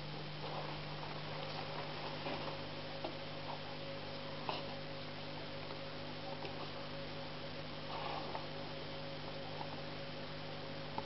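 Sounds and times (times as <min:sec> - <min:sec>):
low electrical hum: 0:00.0 - 0:11.0
soft rustle: 0:00.3 - 0:04.8, 0:07.8 - 0:08.8.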